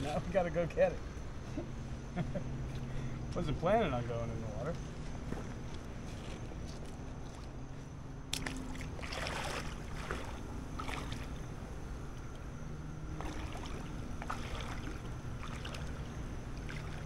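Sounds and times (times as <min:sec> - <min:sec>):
splashing in shallow water: 0:08.3 - 0:11.6, 0:13.1 - 0:17.0.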